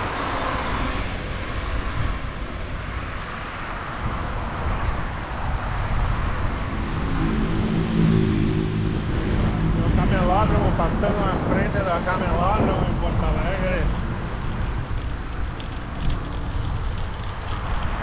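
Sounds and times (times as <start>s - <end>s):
passing cars: 0.0s - 18.0s
wind rushing on microphone: 0.0s - 18.0s.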